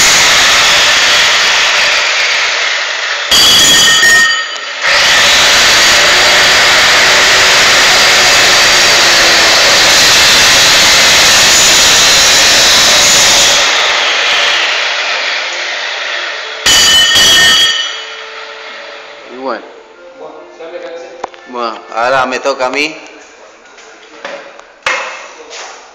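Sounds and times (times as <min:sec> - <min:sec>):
angle grinder cutting steel: 0:00.0 - 0:19.2.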